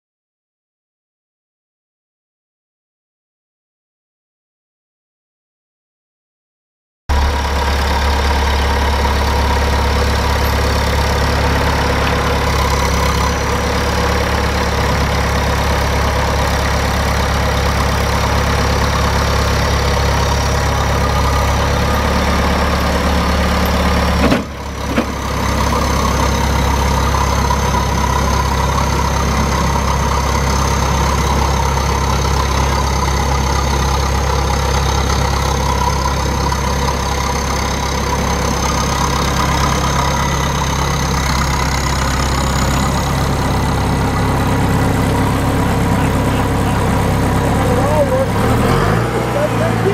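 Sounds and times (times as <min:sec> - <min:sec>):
diesel engine idling: 0:07.1 - 0:49.9.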